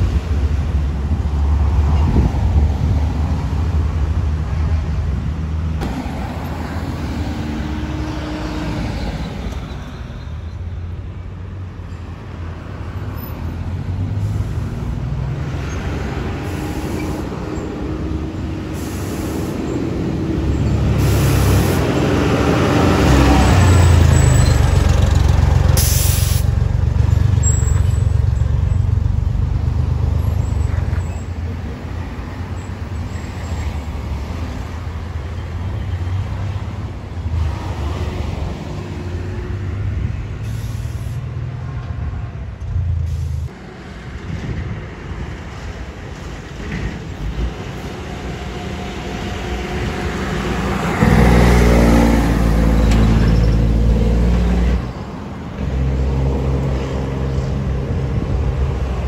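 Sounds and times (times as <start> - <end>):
car traffic: 0.0 - 59.0
truck diesel engine rumbling: 13.6 - 41.5, 42.1 - 59.0
air brakes hissing: 18.7 - 19.8, 21.0 - 21.9, 25.8 - 26.6, 40.4 - 41.3, 43.0 - 43.6.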